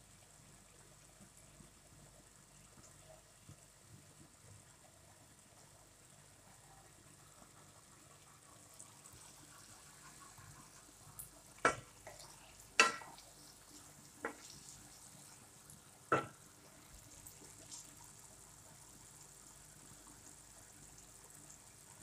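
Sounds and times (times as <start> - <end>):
faint steady sizzle: 0.0 - 22.0
spatula stirring in pot: 9.2 - 15.5
spatula knocking on metal pot: 12.8 - 13.1, 16.1 - 16.4.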